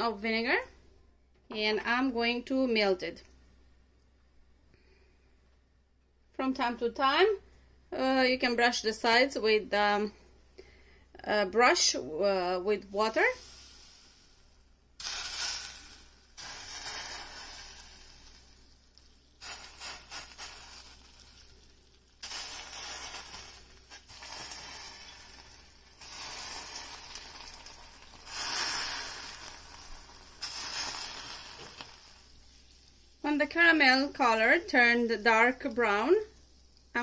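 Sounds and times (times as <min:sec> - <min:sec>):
caramel sizzling and hissing: 0:12.8 - 0:37.0
caramel bubbling: 0:12.9 - 0:37.0.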